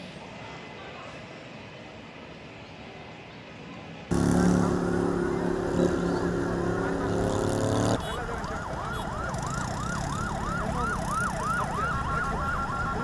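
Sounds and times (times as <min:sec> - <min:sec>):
low steady drone: 0:04.1 - 0:08.0
emergency siren yelping: 0:04.1 - 0:13.0.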